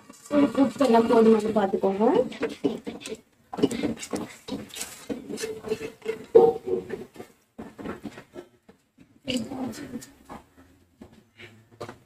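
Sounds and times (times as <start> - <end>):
spoon scraping metal pot: 0.0 - 7.1.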